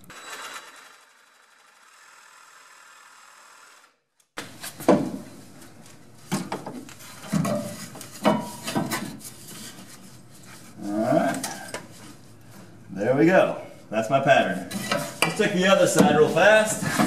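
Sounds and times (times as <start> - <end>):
wood scraping on metal: 14.3 - 17.0.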